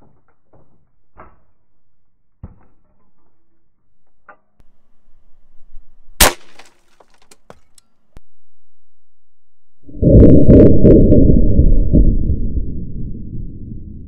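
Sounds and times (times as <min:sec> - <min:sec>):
air rifle shot: 0:06.2 - 0:06.7.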